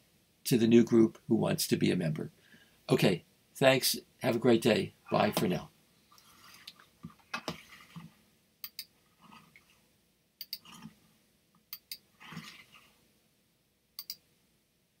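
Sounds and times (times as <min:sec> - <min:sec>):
computer mouse clicks: 0:08.6 - 0:08.9, 0:10.4 - 0:10.9, 0:11.7 - 0:12.6, 0:14.0 - 0:14.2
soft rustles: 0:09.0 - 0:09.9.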